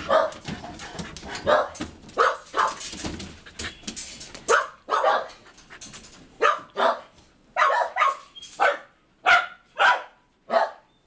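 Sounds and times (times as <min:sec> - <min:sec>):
dog barking and yipping: 0:00.0 - 0:03.0, 0:04.4 - 0:05.6, 0:06.4 - 0:10.9.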